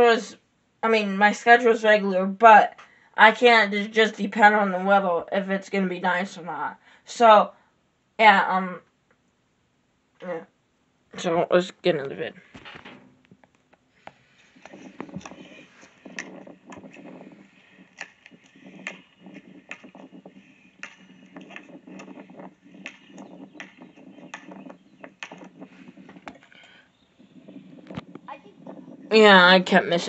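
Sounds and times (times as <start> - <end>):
sharp crackles and knocks: 12.4 - 30.0
wind noise on microphone: 14.4 - 30.0.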